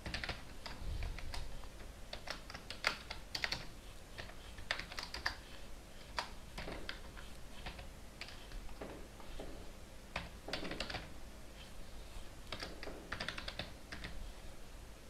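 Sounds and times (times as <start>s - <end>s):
typing on computer keyboard: 0.0s - 5.4s, 6.0s - 9.4s, 10.1s - 11.1s, 12.4s - 14.2s.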